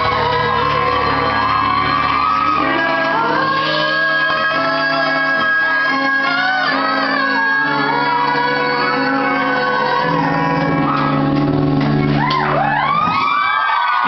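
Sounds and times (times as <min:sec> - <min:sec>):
woman and man singing: 0:00.0 - 0:11.0
electric guitar: 0:00.0 - 0:13.5.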